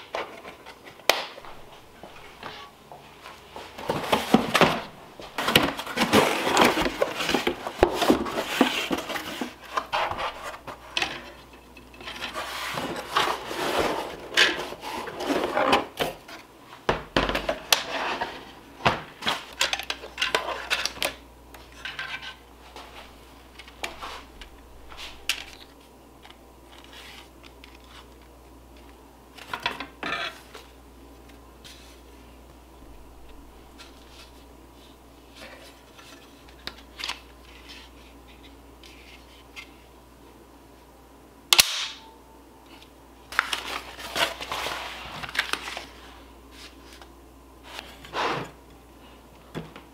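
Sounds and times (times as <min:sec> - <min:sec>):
plastic and metal parts clattering: 0:03.8 - 0:16.4.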